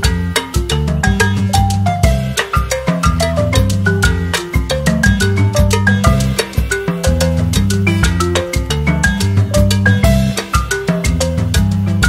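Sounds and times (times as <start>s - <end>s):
bouncy background music: 0.0s - 12.0s.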